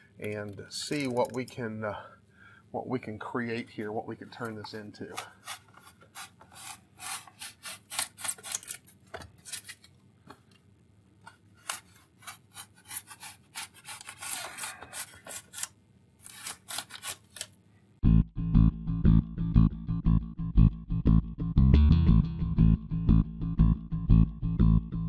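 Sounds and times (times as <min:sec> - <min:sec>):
knife scraping cuts in foam: 0:05.1 - 0:09.9, 0:11.3 - 0:17.5
guitar music: 0:18.0 - 0:25.0.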